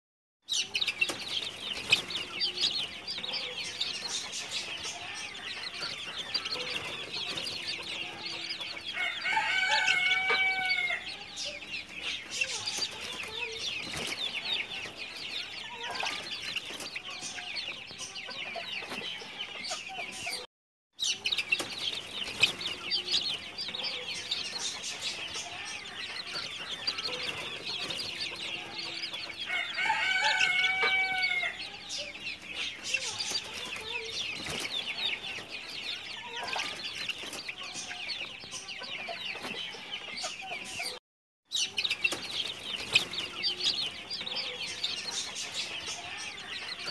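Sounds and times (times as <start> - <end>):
chicks peeping: 0.5 - 46.9
crow-like chicken call: 9.0 - 11.0, 29.5 - 31.6.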